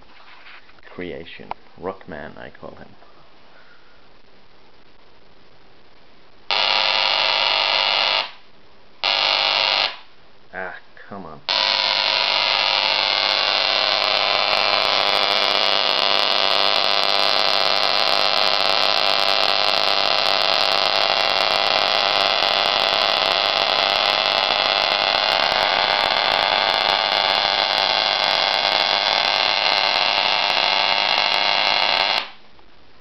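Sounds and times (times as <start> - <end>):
tesla coil buzzing: 6.4 - 10.2, 11.5 - 32.5.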